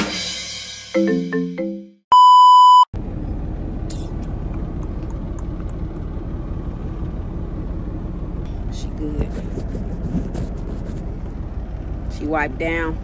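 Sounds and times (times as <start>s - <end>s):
high electronic beep: 2.1s - 2.9s
low rumble in truck cab: 3.0s - 13.0s.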